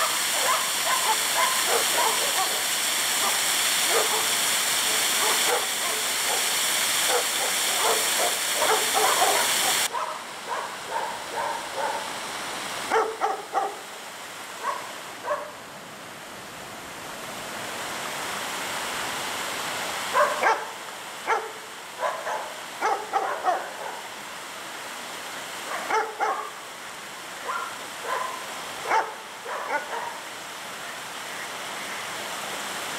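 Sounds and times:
dog barking: 0.0 - 2.6, 3.2 - 4.3, 5.2 - 6.5, 7.1 - 12.1, 12.9 - 13.8, 14.6 - 15.6, 20.1 - 24.1, 25.7 - 26.6, 27.4 - 30.2
waterfall and stream rushing: 0.0 - 32.9.

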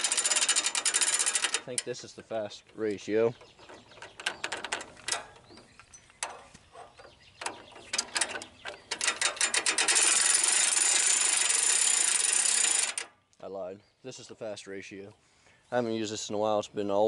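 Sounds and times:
winch ratchet clicking: 0.0 - 2.0, 7.4 - 13.1.

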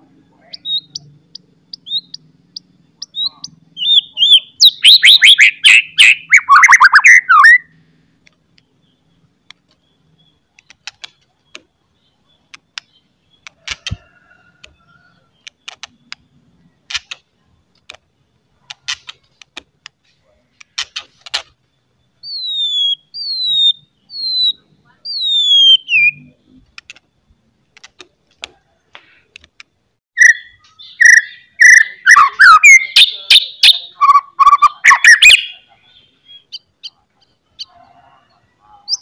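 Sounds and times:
bird harsh chattering: 0.4 - 7.7, 22.2 - 26.2, 30.2 - 37.1.

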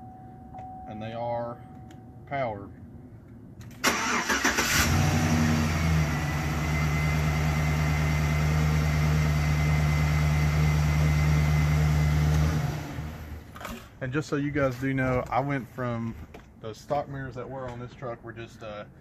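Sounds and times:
engine starter cranking: 3.7 - 5.1.

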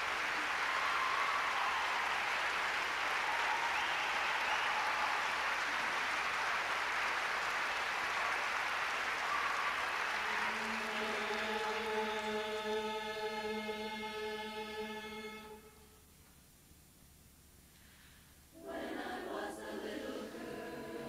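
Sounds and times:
audience applauding: 0.0 - 13.9.

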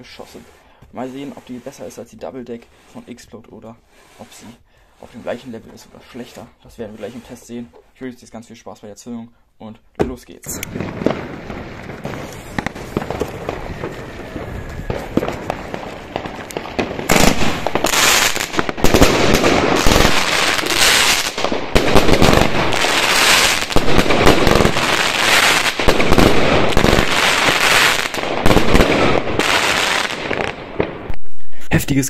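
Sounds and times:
firework launch thumps: 10.0 - 20.3
dense firework crackle: 10.6 - 31.4.

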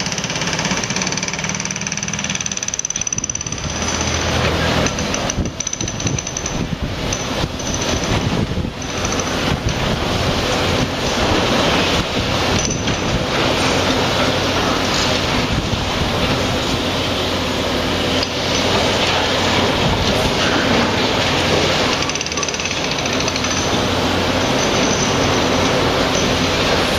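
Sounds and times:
diesel engine running: 0.0 - 26.9
concrete crushing knocks and clinks: 12.4 - 15.4, 18.2 - 26.9.

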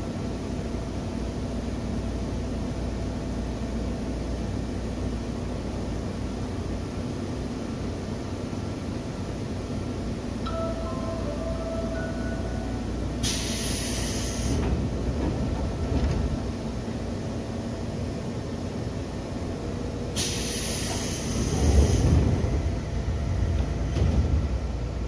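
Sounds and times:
low rumble of train: 0.0 - 25.0
compressed air hiss: 13.2 - 14.6, 20.2 - 22.1.

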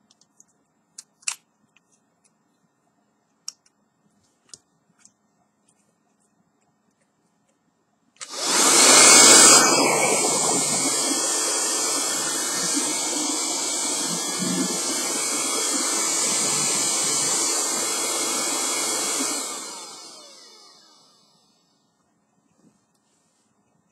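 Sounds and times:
handheld vacuum cleaner running: 8.2 - 21.7
motor winding down whine: 8.2 - 21.7.

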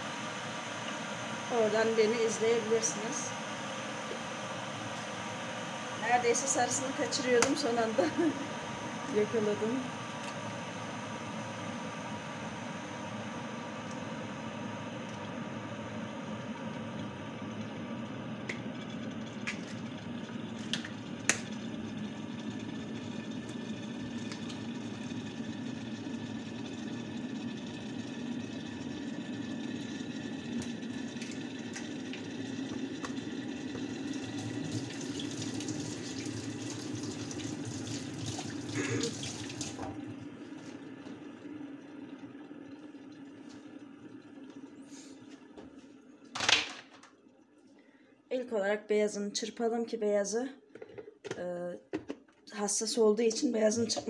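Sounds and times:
steady hum: 0.0 - 49.1
water tap running: 14.5 - 44.8, 53.1 - 54.0.

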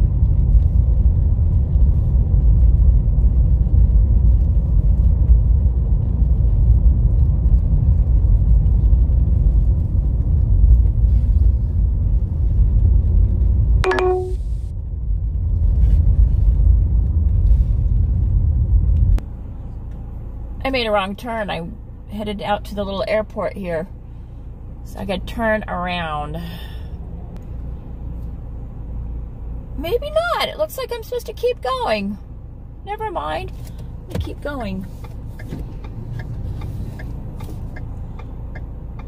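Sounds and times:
car road and engine rumble: 0.0 - 39.0
brief pitched sound: 13.8 - 14.5.

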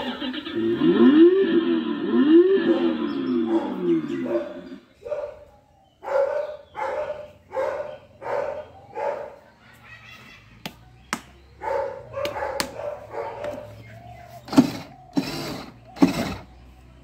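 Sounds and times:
dog barking: 2.7 - 9.5, 11.6 - 13.8.

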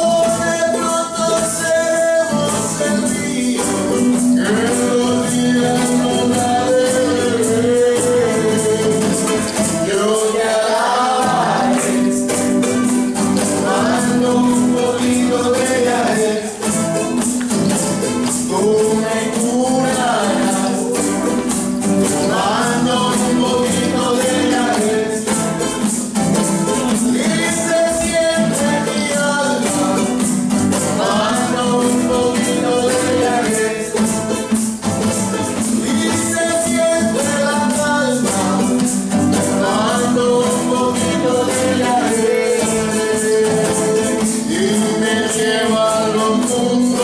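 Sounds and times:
shaker rhythm: 0.0 - 47.0
strummed acoustic guitars: 0.0 - 47.0
people singing a chant: 4.4 - 12.6, 13.4 - 16.6, 18.5 - 25.4, 27.2 - 34.0, 39.4 - 47.0.

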